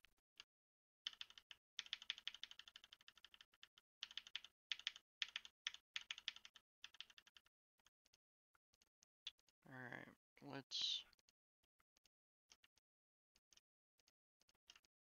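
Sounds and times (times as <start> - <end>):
keyboard clicking: 1.1 - 7.5, 14.4 - 15.0.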